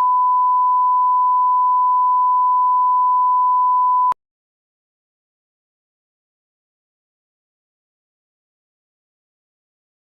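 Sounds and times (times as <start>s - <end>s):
pure reference tone beep: 0.0s - 4.2s.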